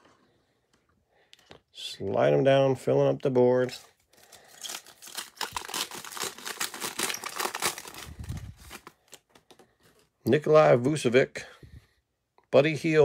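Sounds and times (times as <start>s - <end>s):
card pack wrapper crinkling and tearing: 3.9s - 9.6s.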